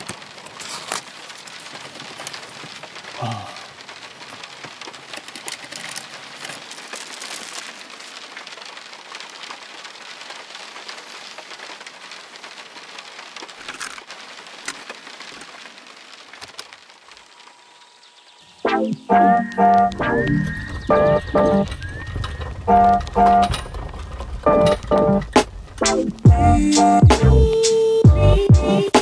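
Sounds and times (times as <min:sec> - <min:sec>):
packaging crinkling: 0:00.0 - 0:03.2, 0:03.8 - 0:09.7, 0:12.4 - 0:17.4
rain on car roof: 0:00.0 - 0:29.0.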